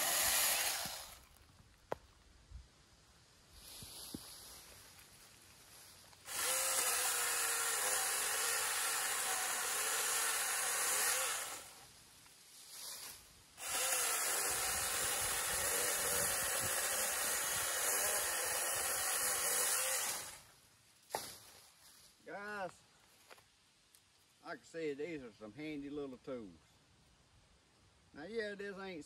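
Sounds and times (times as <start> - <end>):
cordless chainsaw cutting branches: 0.0 - 1.4, 6.2 - 11.9, 13.6 - 20.5.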